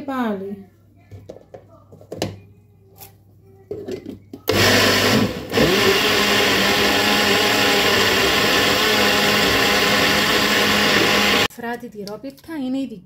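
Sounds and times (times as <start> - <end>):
blender running: 4.5 - 11.5.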